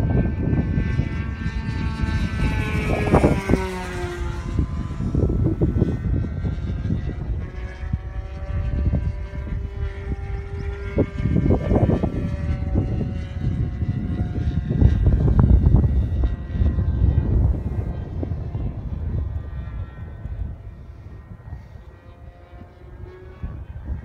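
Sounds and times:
model plane engine droning: 0:00.0 - 0:24.0
wind rumble on microphone: 0:00.0 - 0:24.0.

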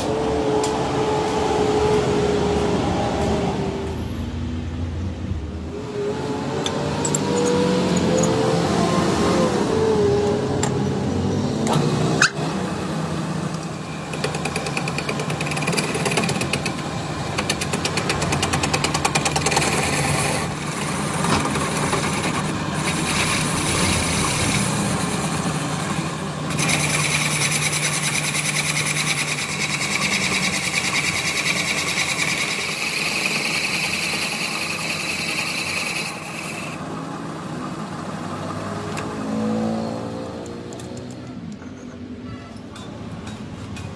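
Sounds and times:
metal lathe cutting steel: 0:06.4 - 0:09.7, 0:11.7 - 0:39.4.

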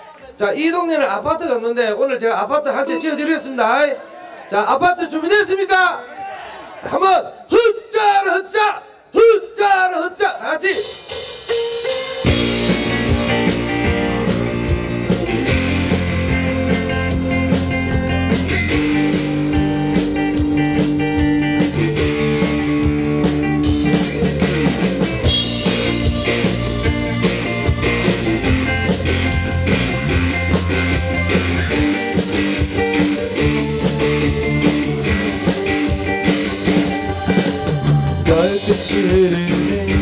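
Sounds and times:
drum beat: 0:10.7 - 0:40.0
keyboard: 0:10.7 - 0:40.0
electric guitar: 0:11.0 - 0:40.0.

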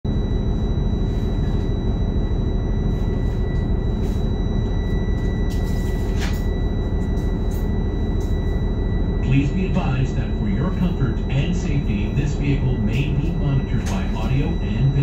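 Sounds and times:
high whine: 0:00.1 - 0:15.0.

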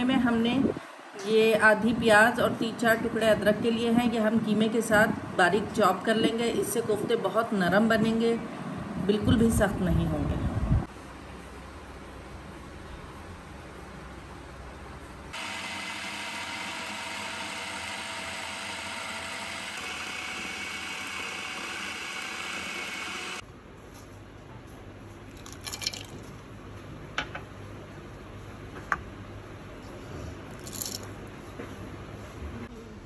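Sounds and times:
food processor motor whining: 0:15.4 - 0:23.4.

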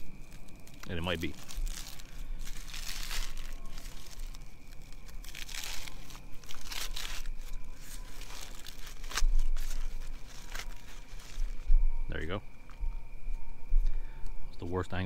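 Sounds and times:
dry corn husk tearing: 0:00.0 - 0:11.7.

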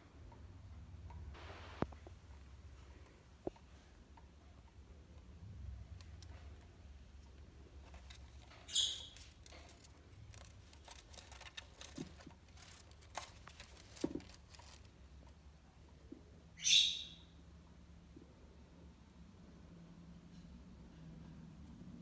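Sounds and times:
parrot chewing on blind slat: 0:07.8 - 0:14.9
parrot chirps: 0:08.7 - 0:09.2, 0:16.6 - 0:17.3.

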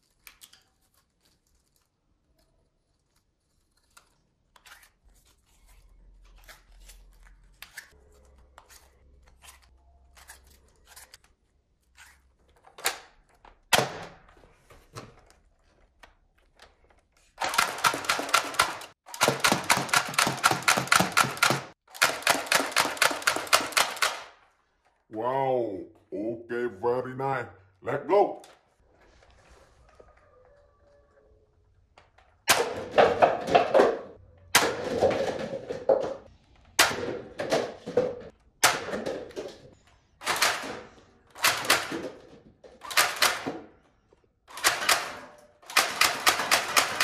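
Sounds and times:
toy gun firing rapidly: 0:17.4 - 0:24.4, 0:40.2 - 0:40.8, 0:41.4 - 0:42.1, 0:42.8 - 0:43.5, 0:44.5 - 0:47.0.

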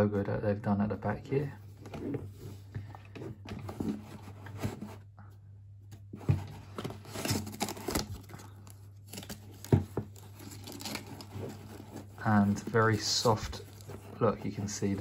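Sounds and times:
paper rustling and scraping: 0:06.2 - 0:08.5, 0:09.1 - 0:15.0.

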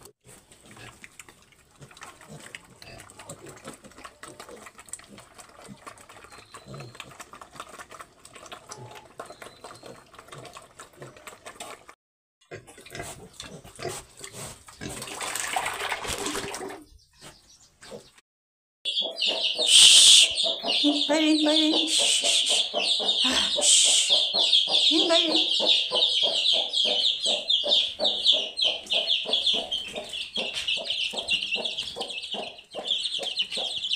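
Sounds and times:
pigs chomping: 0:00.0 - 0:16.8
pigs slurping: 0:00.0 - 0:16.9
chicks peeping: 0:18.9 - 0:33.9
hen clucking: 0:18.9 - 0:33.9.

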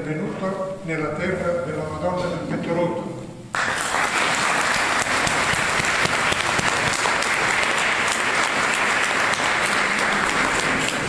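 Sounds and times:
crowd applauding: 0:03.5 - 0:11.0.

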